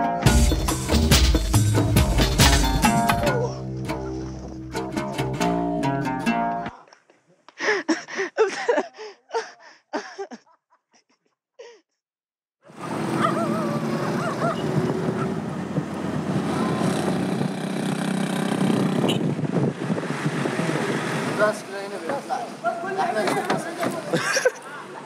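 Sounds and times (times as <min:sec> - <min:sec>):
guitar music: 0:00.0 - 0:06.7
car engine and road noise: 0:12.6 - 0:24.1.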